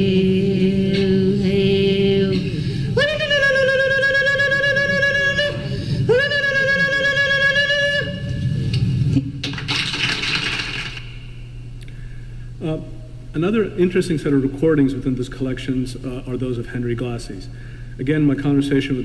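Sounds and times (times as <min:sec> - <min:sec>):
women singing: 0:00.0 - 0:08.2.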